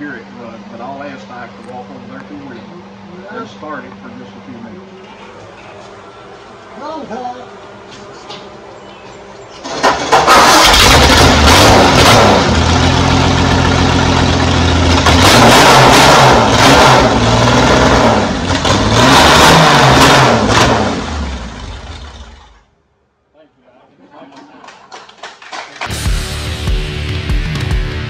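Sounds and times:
race engine revving: 0:09.6 - 0:22.4.

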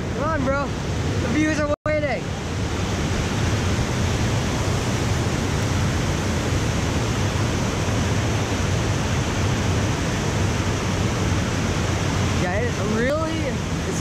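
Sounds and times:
rushing pumped water: 0:00.0 - 0:14.0.

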